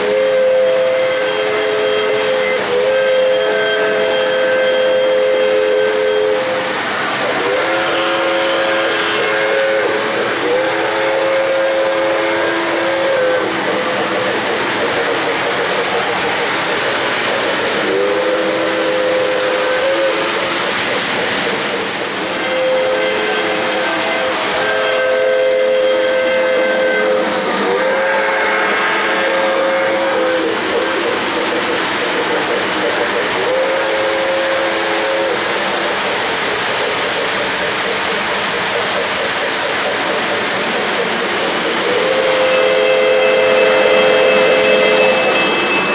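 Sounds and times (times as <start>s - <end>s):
model train whistle blasts: 0.0s - 13.6s, 17.7s - 20.6s, 22.3s - 31.0s, 33.4s - 35.6s, 41.8s - 45.9s
rumble of model trains: 0.0s - 45.9s
steady hiss: 0.0s - 45.9s.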